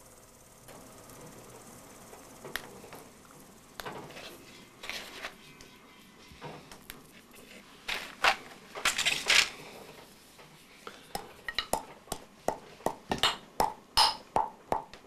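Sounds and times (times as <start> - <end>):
pestle pounding in mortar: 11.5 - 15.0.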